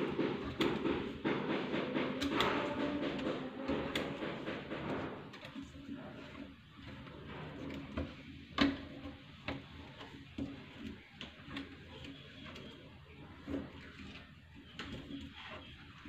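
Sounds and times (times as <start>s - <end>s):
plastic fittings clicking and knocking: 0.0s - 12.8s.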